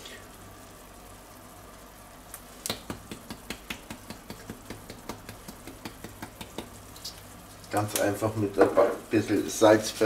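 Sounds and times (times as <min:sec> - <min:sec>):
faint steady hum: 0:00.0 - 0:10.0
spice shaker clicking: 0:02.3 - 0:07.3.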